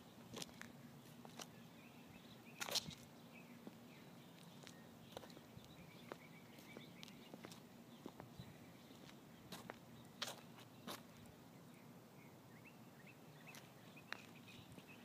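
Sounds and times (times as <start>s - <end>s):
footstep scuff: 2.6s - 3.8s
faint footsteps: 2.6s - 11.1s.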